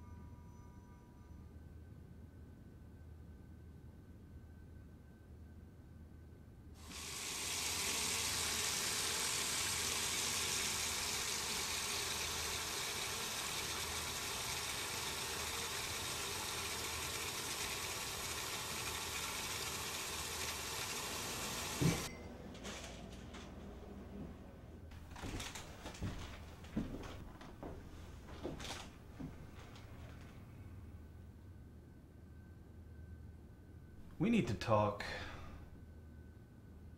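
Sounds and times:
kitchen tap running: 6.8 - 22.1
tap shut off knock: 20.8 - 22.1.

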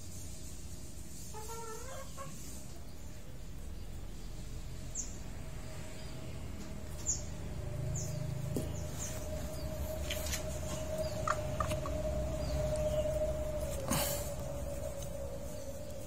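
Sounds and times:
junglefowl clucking call: 1.3 - 2.4, 10.7 - 12.0
high falling chirps: 7.1 - 16.0.

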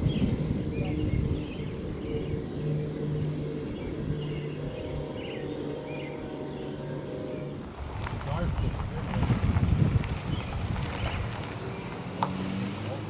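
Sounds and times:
bird chirps: 0.0 - 7.6
diesel locomotive engine drone: 0.0 - 13.0.

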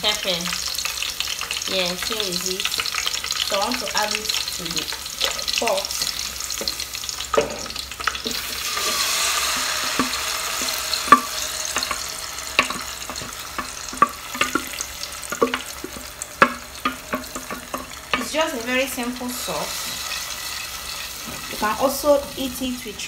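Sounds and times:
puree sizzling in hot pot: 0.0 - 23.0
bowl knocking against metal pot: 9.8 - 12.0, 12.6 - 14.7.

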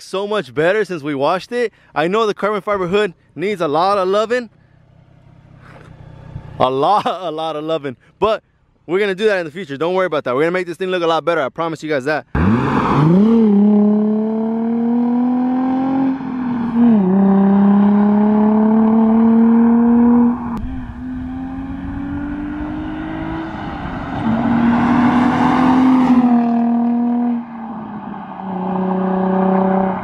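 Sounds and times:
car engine accelerating hard: 12.4 - 30.0.

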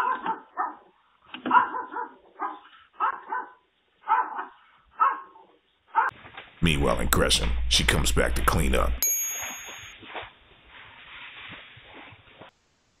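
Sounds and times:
dog barking: 0.0 - 6.1.

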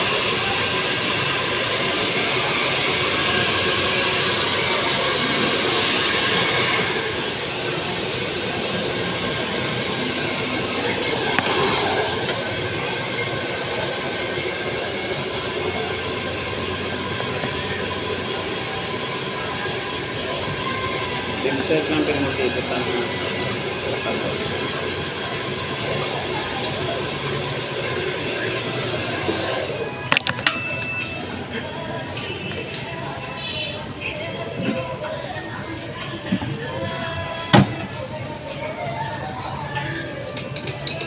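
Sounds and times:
hair dryer blowing: 0.0 - 30.3.

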